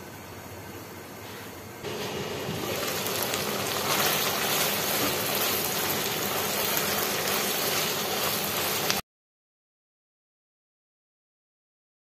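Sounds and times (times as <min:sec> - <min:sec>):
chicken sizzling in oil: 0:01.9 - 0:09.0.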